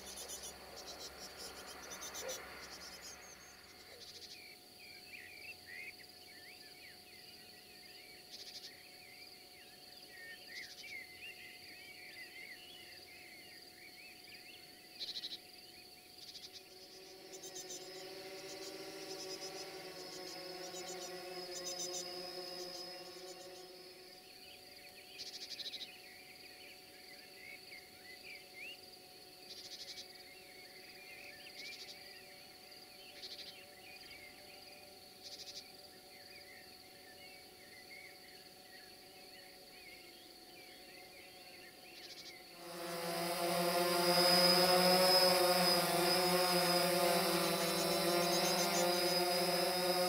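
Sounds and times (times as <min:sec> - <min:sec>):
steady low hum: 0:00.0 - 0:05.5, 0:15.7 - 0:35.3, 0:38.7 - 0:50.0
faint chirping: 0:00.0 - 0:50.0
insect trills: 0:00.0 - 0:50.0
loud steady noise: 0:42.5 - 0:50.0.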